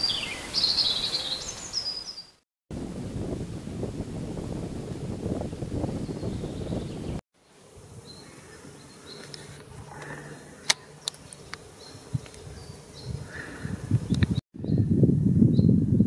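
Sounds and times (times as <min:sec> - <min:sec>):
natural ambience: 0:00.0 - 0:14.9
insect buzzing: 0:07.4 - 0:14.1.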